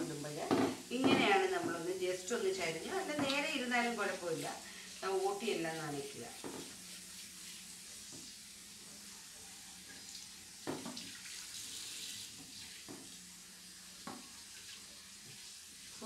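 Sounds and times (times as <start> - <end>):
tap water running into sink: 2.6 - 8.6, 9.8 - 13.3, 13.9 - 16.0.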